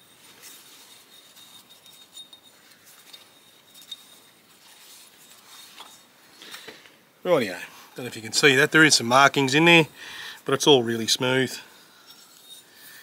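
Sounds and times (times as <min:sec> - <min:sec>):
rag rustling: 0:00.0 - 0:06.7.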